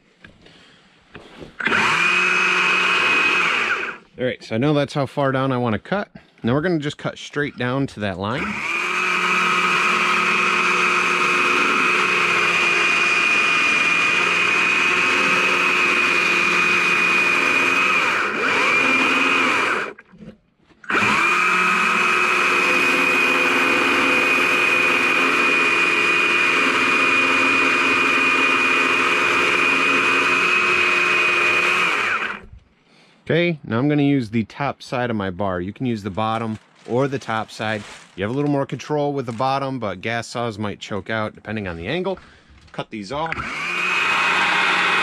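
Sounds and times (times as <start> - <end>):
electric chainsaw cutting log: 1.6 - 4.1, 8.4 - 20.0, 20.8 - 32.5, 43.3 - 45.0.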